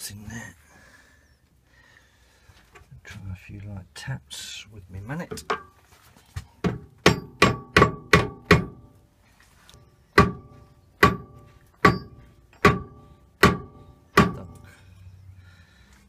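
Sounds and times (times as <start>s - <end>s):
mallet tapping metal spindle: 10.2s - 14.6s.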